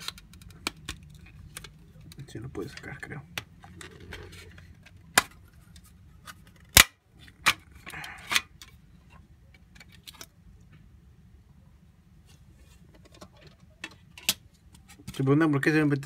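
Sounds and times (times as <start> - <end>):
plastic scrape: 3.6 - 6.7.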